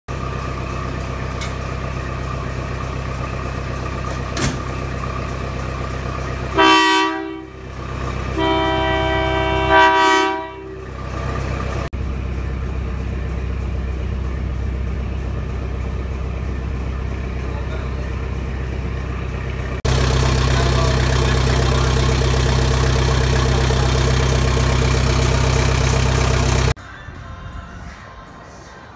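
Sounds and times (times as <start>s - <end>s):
locomotive engine idling: 0.1s - 26.8s
locomotive horn blasts: 6.5s - 7.7s, 8.3s - 11.0s.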